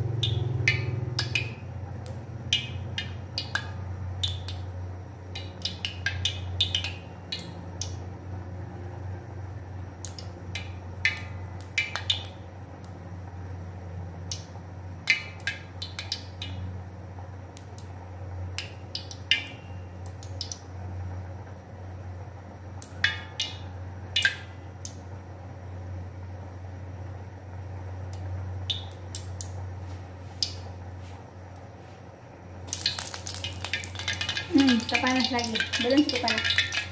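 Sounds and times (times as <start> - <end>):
steady low hum: 0.0 - 36.9
oil crackling and popping: 32.6 - 36.9.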